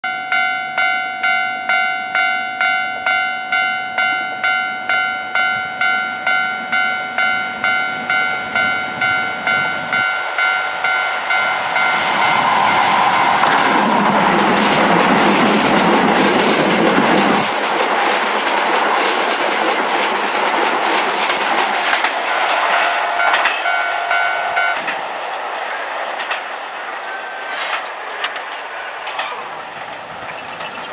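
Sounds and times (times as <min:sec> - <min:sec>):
level crossing bell dinging: 0:00.0 - 0:12.0, 0:23.1 - 0:24.8
electric train passing: 0:00.1 - 0:30.9.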